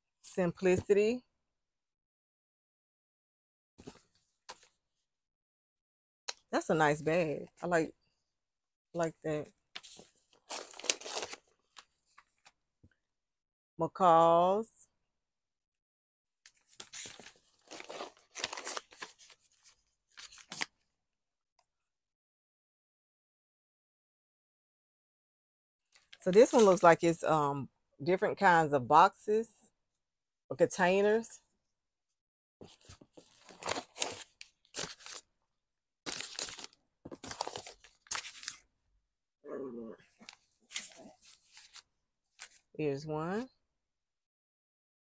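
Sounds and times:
paper envelopes rustling: 9.8 - 12.5, 16.6 - 20.7, 32.7 - 35.2, 36.1 - 38.6, 40.2 - 41.8.

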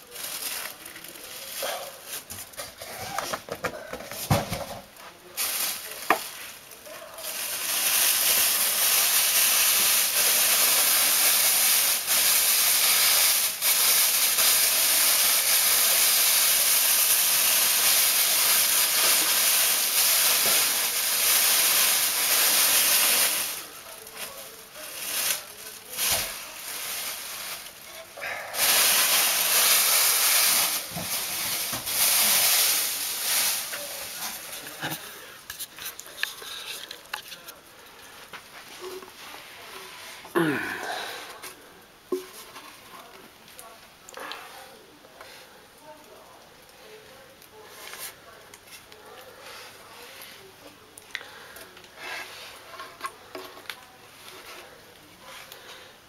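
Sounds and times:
plastic packaging rustling: 0.0 - 40.3.

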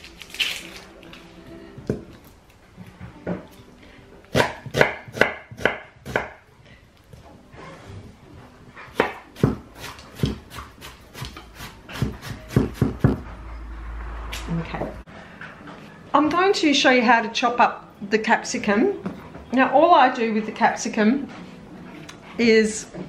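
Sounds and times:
knife chopping on wooden board: 4.3 - 6.4, 8.9 - 13.2.

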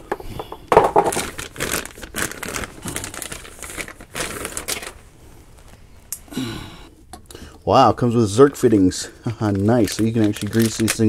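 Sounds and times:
plastic bag crinkling: 0.7 - 5.8, 8.3 - 11.0.

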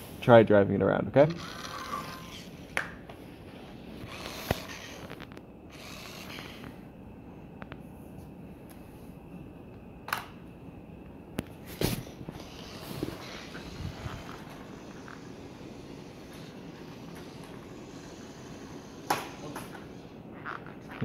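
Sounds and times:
small electric motor whirring: 1.4 - 2.6, 4.0 - 6.8, 12.3 - 20.2.

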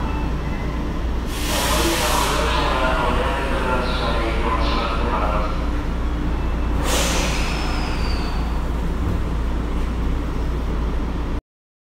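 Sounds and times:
subway train humming: 0.0 - 11.4
air hiss burst: 1.3 - 2.3, 6.8 - 7.9.

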